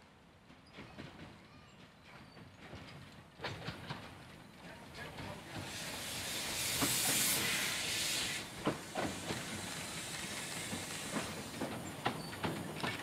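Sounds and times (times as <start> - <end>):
train wheels clicking on track: 0.0 - 13.0
steam hissing: 5.1 - 12.8.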